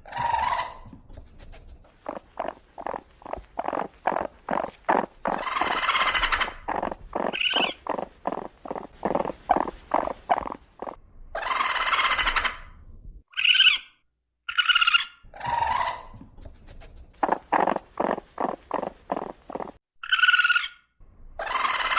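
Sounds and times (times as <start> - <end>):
raccoon harsh rasping call: 0.0 - 1.0, 3.6 - 8.5, 9.2 - 12.7, 14.5 - 16.3, 20.0 - 20.8, 21.4 - 21.9
raccoon chattering calls: 0.0 - 12.7, 14.5 - 20.8, 21.4 - 21.9.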